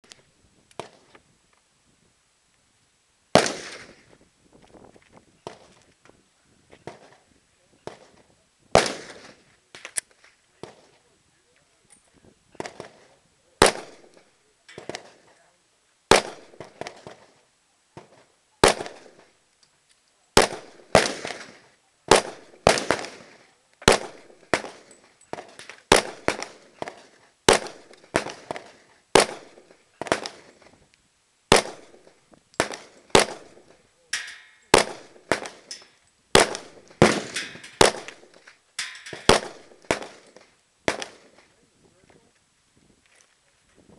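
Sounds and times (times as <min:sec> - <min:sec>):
pistol shots with echo: 0:03.4 - 0:04.0, 0:08.8 - 0:09.4, 0:13.6 - 0:15.2, 0:16.1 - 0:17.3, 0:18.6 - 0:19.2, 0:20.4 - 0:30.5, 0:31.5 - 0:41.4
weaker gunshots: 0:03.4 - 0:04.1, 0:07.8 - 0:09.5, 0:12.6 - 0:15.3, 0:16.1 - 0:17.4, 0:18.0 - 0:19.3, 0:20.4 - 0:30.6, 0:31.5 - 0:41.4.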